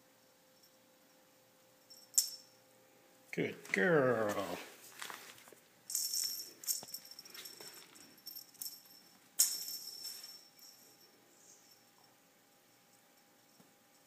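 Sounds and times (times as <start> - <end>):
small jingle bell jingling: 0.2 - 2.6, 5.9 - 14.0.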